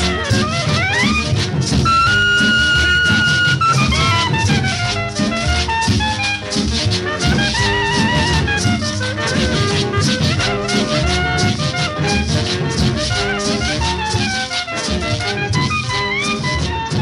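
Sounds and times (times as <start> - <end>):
cumbia music: 0.0 - 17.0
shaken rattle percussion: 0.0 - 17.0
melodic lead sliding down: 1.8 - 4.8.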